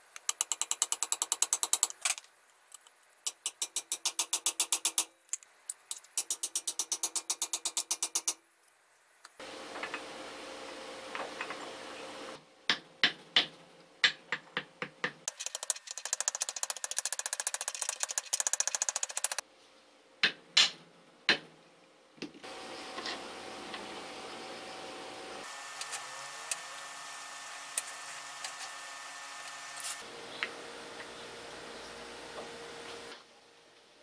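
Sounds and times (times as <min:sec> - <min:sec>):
metal parts ticking: 0:00.2 - 0:02.2, 0:02.8 - 0:08.4, 0:15.3 - 0:19.4.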